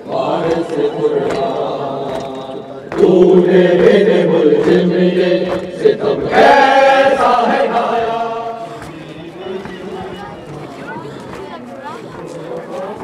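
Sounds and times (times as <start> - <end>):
man chanting into a microphone: 0.0 - 6.3
voices chanting along: 0.0 - 13.0.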